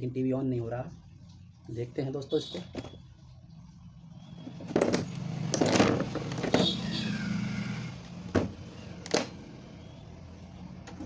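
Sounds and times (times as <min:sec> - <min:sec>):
clatters and knocks of handling: 0:04.4 - 0:06.8.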